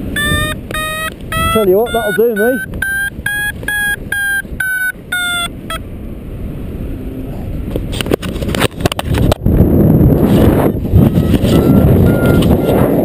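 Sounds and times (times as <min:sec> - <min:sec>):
variometer beeping quickly: 0:00.0 - 0:05.8, 0:10.9 - 0:13.0
wind rushing over microphone: 0:00.0 - 0:13.0.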